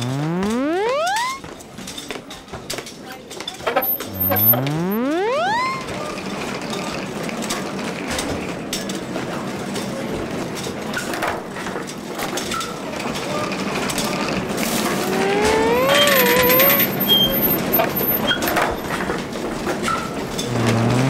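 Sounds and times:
rising siren-like tone: 0:00.0 - 0:01.4, 0:03.7 - 0:06.1, 0:14.6 - 0:18.4.

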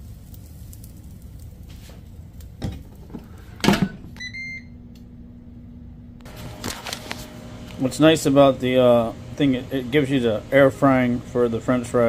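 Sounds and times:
air fryer humming: 0:00.0 - 0:12.0
short beeps: 0:04.2 - 0:04.8.

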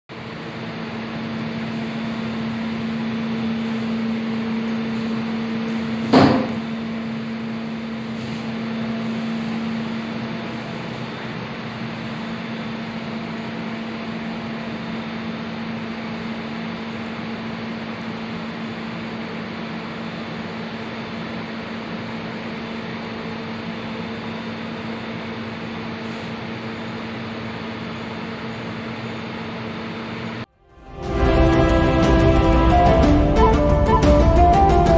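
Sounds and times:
machine hum and fan noise: 0:00.1 - 0:30.5
sharp knock: 0:06.1 - 0:06.6.

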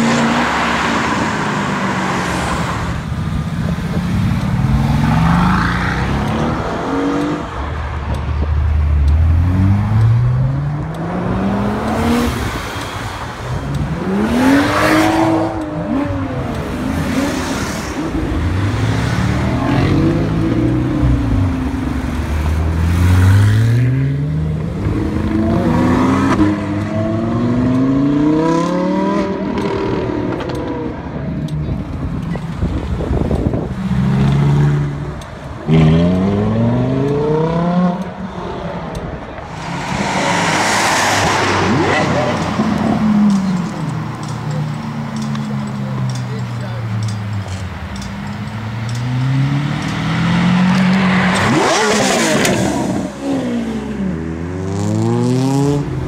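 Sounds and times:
sports cars accelerating hard: 0:09.1 - 0:31.2, 0:32.6 - 0:45.9, 0:48.4 - 0:56.0.

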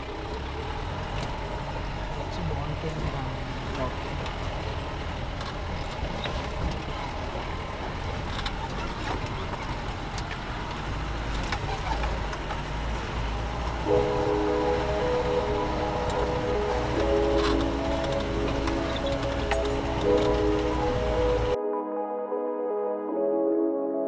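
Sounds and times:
jeep engine and road rumble: 0:00.0 - 0:21.6
rattles and knocks over bumps: 0:00.6 - 0:13.9, 0:15.3 - 0:21.6
background music with held notes: 0:13.6 - 0:24.0.

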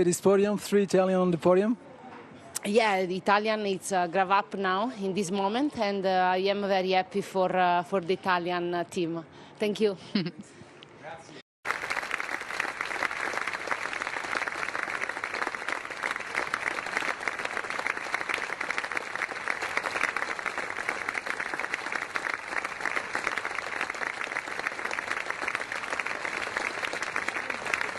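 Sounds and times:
crowd applauding: 0:11.6 - 0:27.9.

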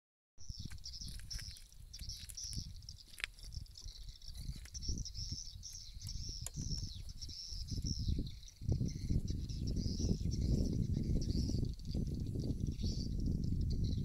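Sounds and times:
wind rumble on microphone: 0:00.5 - 0:14.0.

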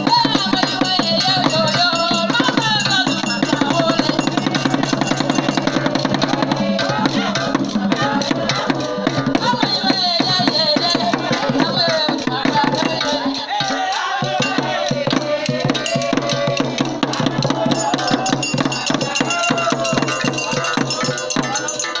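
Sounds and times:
fast hand drumming: 0:00.0 - 0:22.0
voices singing: 0:00.0 - 0:22.0.

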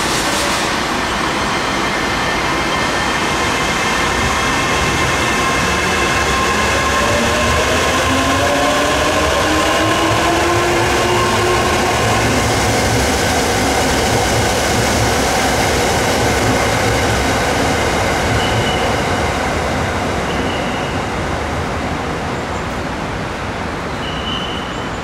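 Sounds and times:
train rumbling on rails: 0:00.0 - 0:25.0
faint high wheel squeals: 0:24.0 - 0:25.0.

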